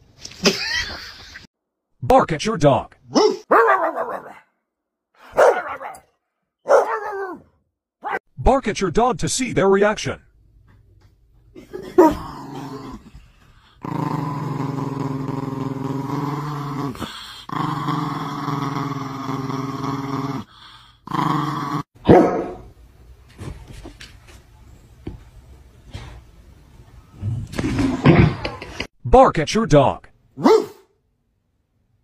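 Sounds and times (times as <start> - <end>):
small dog yapping: 6.7 - 7.4, 30.4 - 30.8.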